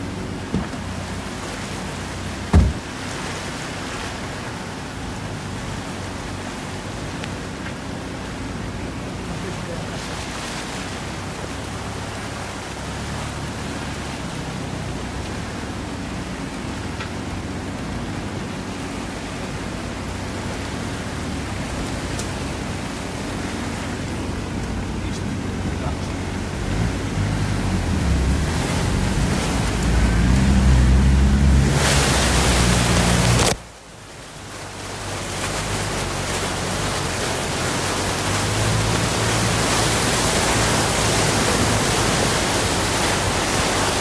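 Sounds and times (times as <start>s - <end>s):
low engine hum: 0.0s - 44.0s
water rushing and churning: 0.0s - 44.0s.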